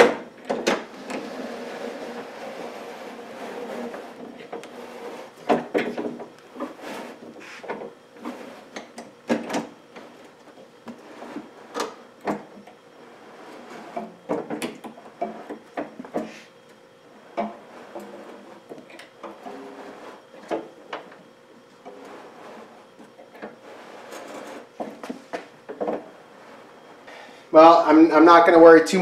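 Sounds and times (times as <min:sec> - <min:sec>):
window winder being cranked: 0:00.8 - 0:07.3, 0:17.2 - 0:21.2, 0:21.8 - 0:25.0
glass sliding in channels: 0:00.9 - 0:09.0, 0:11.0 - 0:12.4, 0:13.0 - 0:14.2, 0:17.2 - 0:21.2, 0:21.8 - 0:27.2.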